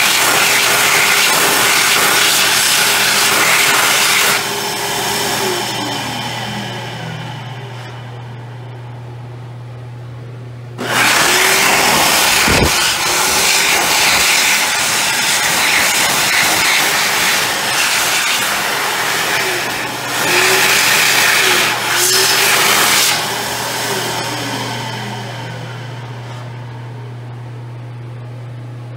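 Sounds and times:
hand dryer blowing: 0.0 - 8.5, 10.8 - 27.1
hand dryer motor spinning down: 0.0 - 9.9, 10.7 - 28.2
low steady hum: 5.8 - 10.8, 24.3 - 28.9.

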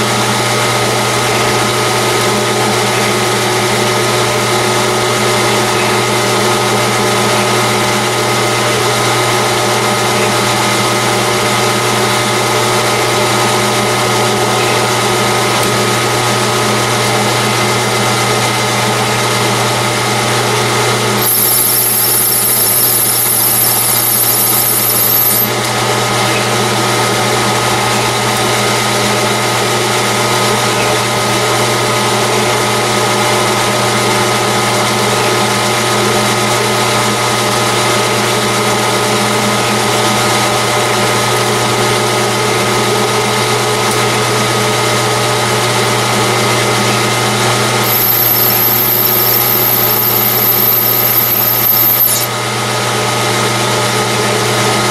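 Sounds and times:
metal lathe running: 20.6 - 31.3, 47.8 - 52.3
high whine: 21.2 - 26.5, 47.8 - 52.3.

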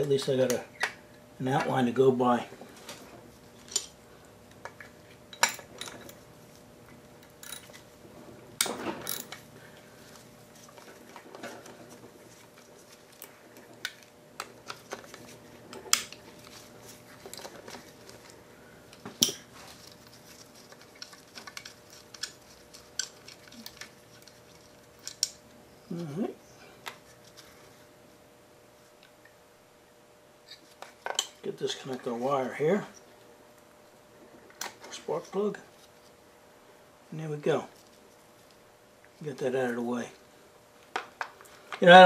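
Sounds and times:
tools clanking against metal: 4.6 - 6.2, 7.4 - 7.8, 8.6 - 9.4.

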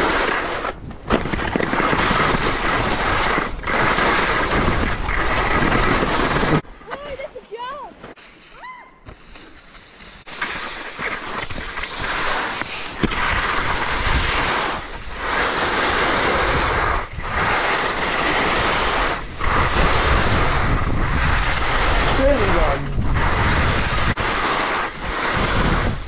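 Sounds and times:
skis scraping over snow: 0.0 - 26.0
wind rushing over microphone: 11.4 - 26.0.

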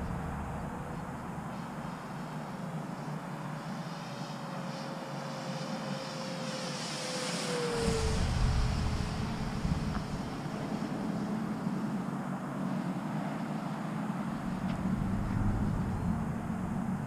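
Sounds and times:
wind rumbling on microphone: 0.0 - 3.8, 7.5 - 17.0
model plane motor whining: 5.1 - 11.3.

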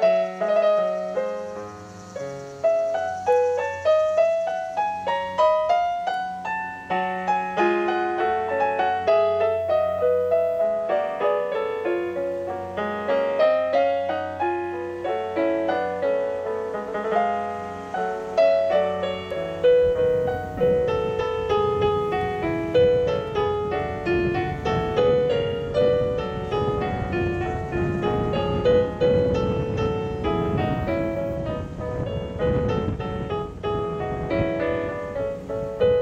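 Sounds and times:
classical piano playing: 0.0 - 36.0.

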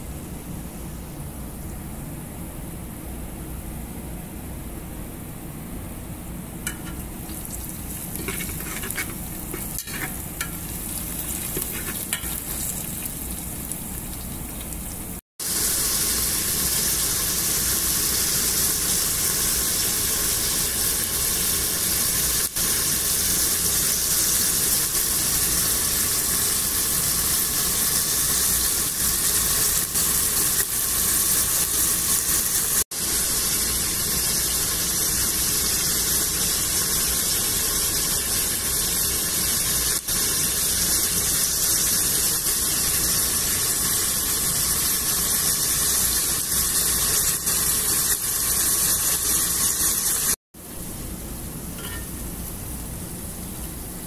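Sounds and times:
chicken sizzling in hot oil: 6.6 - 50.7, 51.7 - 54.0
onion frying: 6.6 - 54.0
metal utensil clicking against pot: 6.7 - 7.0.

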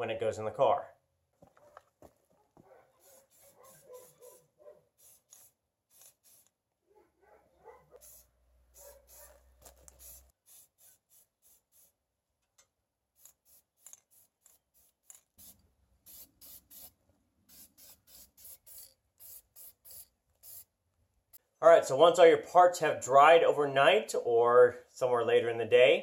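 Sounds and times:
aerosol spray hisses: 3.0 - 6.6, 8.0 - 12.0, 13.2 - 20.7.

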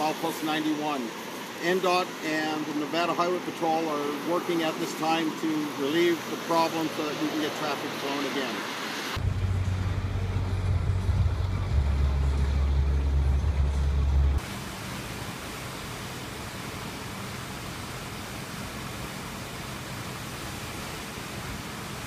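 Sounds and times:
waterfall roaring: 0.0 - 22.0
loud low rumble: 9.2 - 14.4.

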